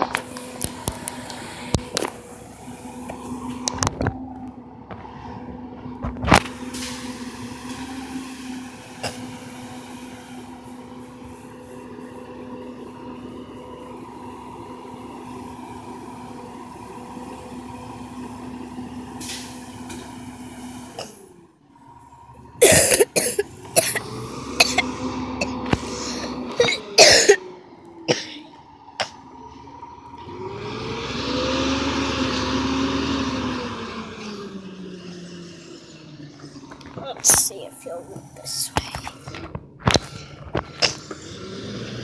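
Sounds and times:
garbage truck engine and hydraulics: 0.0 - 42.0.

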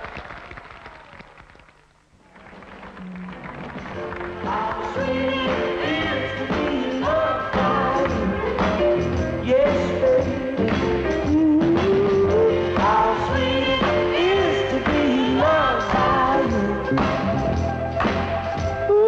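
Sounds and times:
soul song with band: 4.1 - 19.0
person singing: 4.3 - 17.5.

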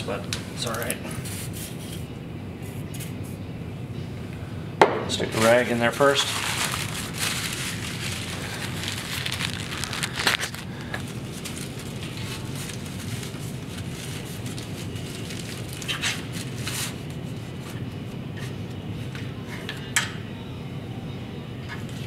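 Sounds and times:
steady low hum: 0.0 - 22.0
paper rag crinkling: 5.4 - 17.8.

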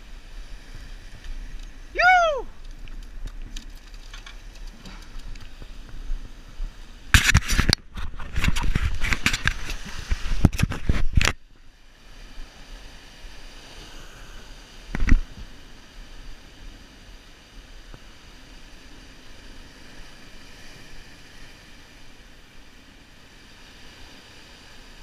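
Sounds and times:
surf hiss: 0.0 - 25.0
crackling on microphone: 2.5 - 6.1, 7.1 - 11.4.

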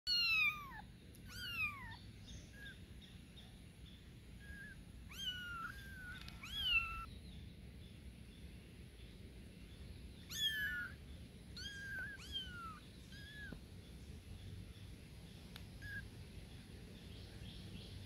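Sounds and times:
kittens mewing: 0.1 - 2.0, 4.4 - 7.1, 10.2 - 11.0, 11.6 - 13.6.

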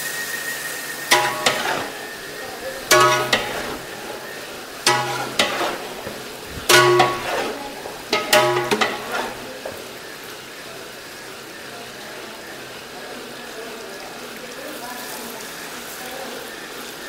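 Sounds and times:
metal ladle clanging on pot: 1.1 - 9.8.

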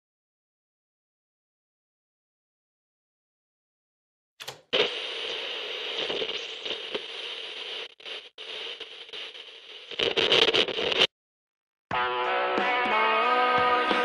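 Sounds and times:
crackling static noise: 4.6 - 11.1
plucked guitar music: 11.9 - 14.0.

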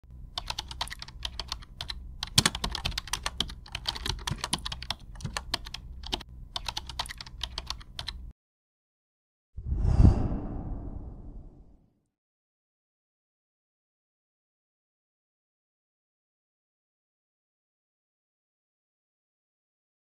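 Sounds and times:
low steady hum: 0.1 - 8.3
keyboard key clicks: 0.4 - 8.2.

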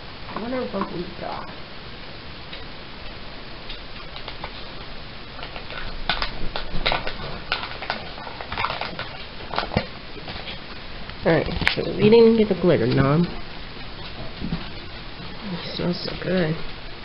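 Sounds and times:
plastic packaging crinkling: 5.4 - 15.8.

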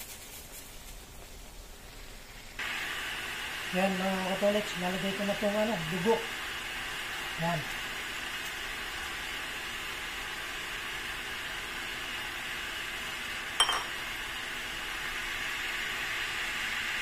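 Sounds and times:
meat sizzling in a wok: 0.0 - 17.0
ceramic bowl clinking on wok: 13.6 - 14.0.

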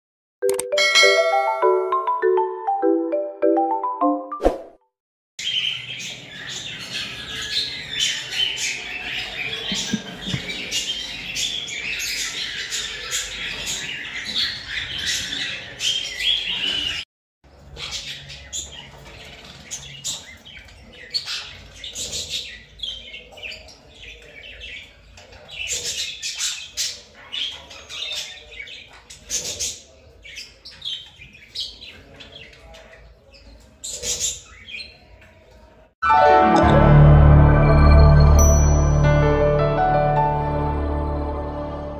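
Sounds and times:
birds chirping and squawking: 5.4 - 35.9.

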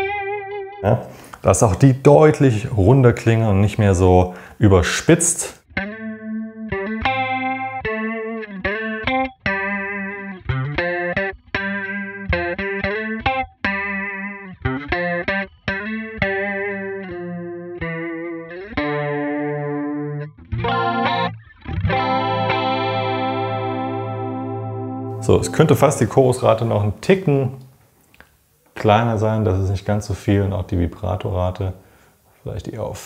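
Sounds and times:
clean electric guitar notes: 5.7 - 27.7.

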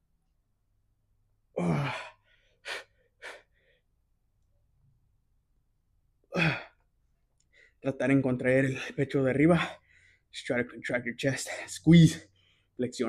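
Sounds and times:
man breathing heavily with effort: 1.6 - 3.9.

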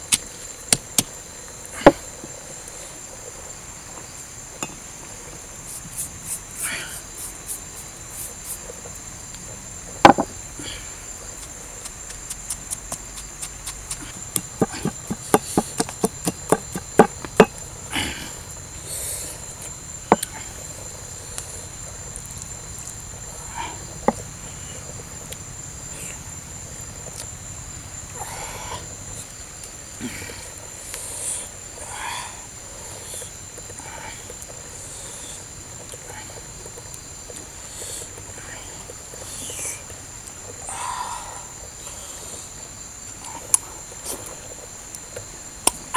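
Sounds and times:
high-pitched insect drone: 0.0 - 45.9
pestle pounding in stone mortar: 13.2 - 17.6.

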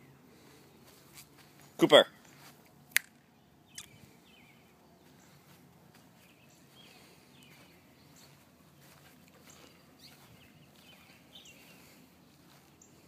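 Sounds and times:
faint bird chirps: 3.6 - 13.0.

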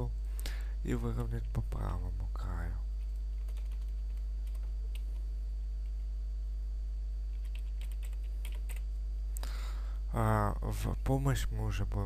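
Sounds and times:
low electrical hum: 0.0 - 12.0
keyboard typing: 3.0 - 5.2, 7.3 - 8.9.

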